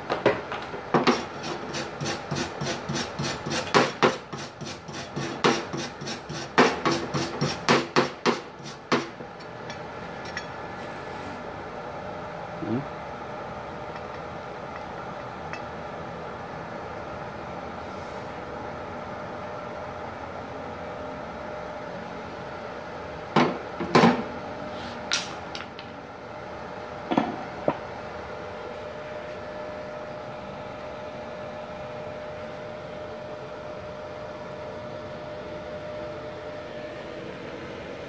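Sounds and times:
cooling fan whining: 0:00.0 - 0:38.0.

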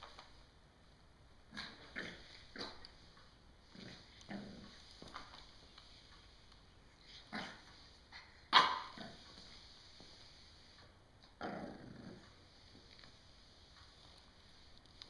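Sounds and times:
puppy barking: 0:08.5 - 0:09.1.

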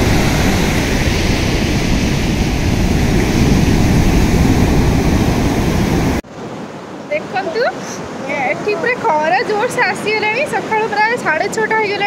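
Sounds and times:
wind rumble on microphone: 0:00.0 - 0:06.2
sea surf breaking on beach: 0:00.0 - 0:12.0.

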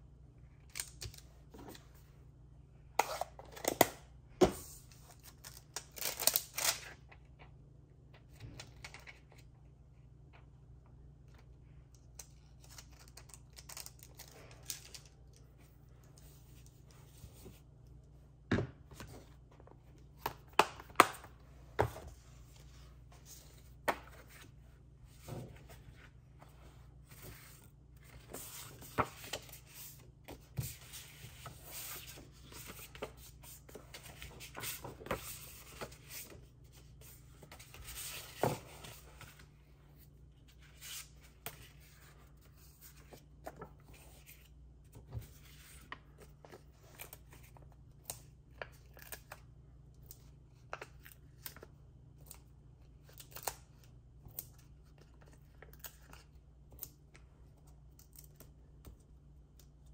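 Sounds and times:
paper and card rustling: 0:18.9 - 0:47.7.

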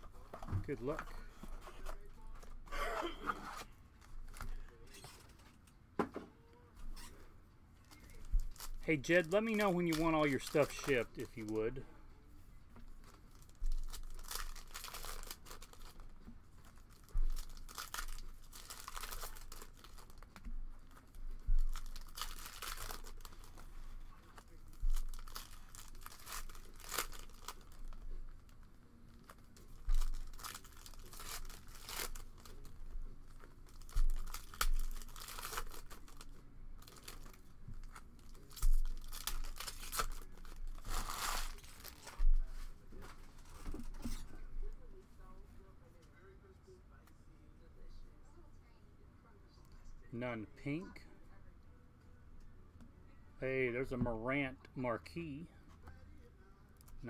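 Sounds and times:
foil wrappers tearing and crinkling: 0:07.9 - 0:11.8, 0:13.0 - 0:44.2.

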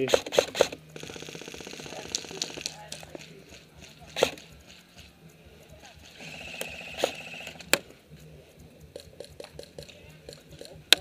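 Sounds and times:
airsoft gun sharp cracks: 0:00.0 - 0:03.2
rapid burst of airsoft fire: 0:00.0 - 0:05.0, 0:05.9 - 0:07.9.

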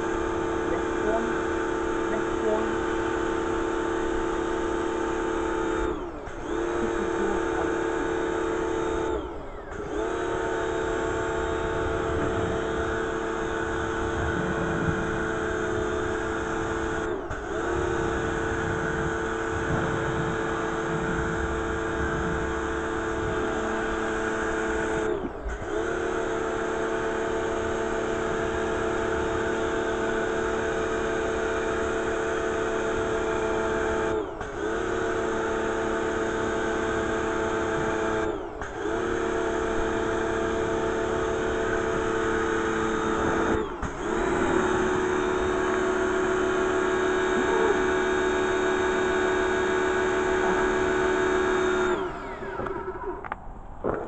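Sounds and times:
pressure washer motor humming: 0:00.0 - 0:54.0.

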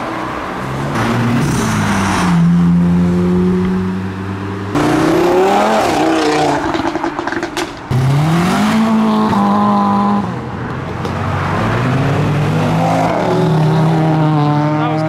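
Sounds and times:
car engine revving: 0:00.6 - 0:10.5.

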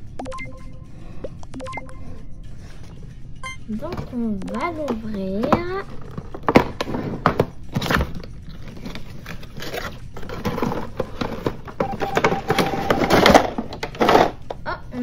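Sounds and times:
packaging rustling and crinkling: 0:05.8 - 0:14.5.

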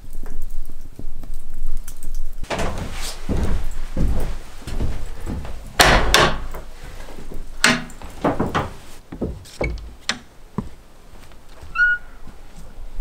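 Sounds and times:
wood knocking and clattering: 0:02.5 - 0:06.7, 0:07.6 - 0:10.8
brief squeak: 0:11.7 - 0:12.2.

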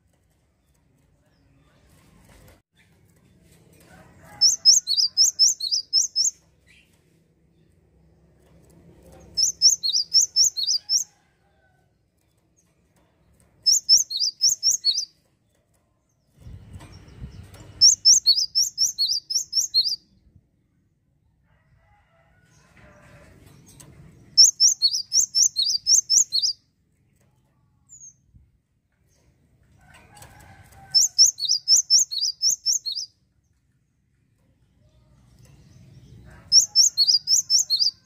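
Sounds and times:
bird singing rapid high notes: 0:04.4 - 0:06.3, 0:09.4 - 0:11.0, 0:13.7 - 0:15.1, 0:17.8 - 0:20.0, 0:24.4 - 0:26.6, 0:31.0 - 0:33.1.

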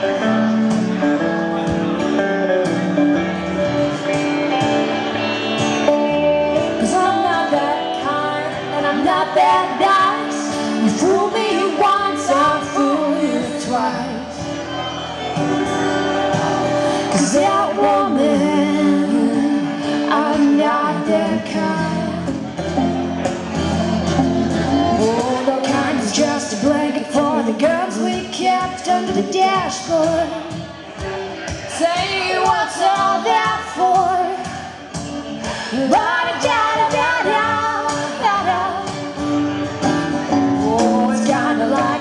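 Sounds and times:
acoustic guitar: 0:00.0 - 0:42.0
electric guitar: 0:00.0 - 0:42.0
woman singing: 0:06.6 - 0:14.5, 0:16.8 - 0:22.6, 0:24.6 - 0:30.7, 0:31.7 - 0:39.2, 0:40.5 - 0:42.0.

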